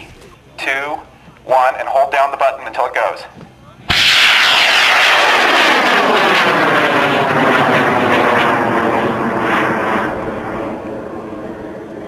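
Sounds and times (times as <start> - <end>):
rocket motor roaring: 3.9 - 12.0.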